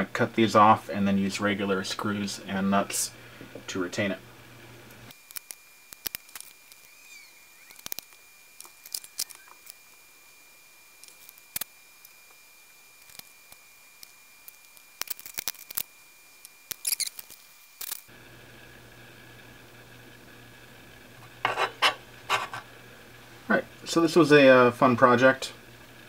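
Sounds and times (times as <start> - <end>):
small screws and nuts handled: 5.2 - 6.9, 7.7 - 9.9, 11.0 - 12.2, 13.0 - 18.1.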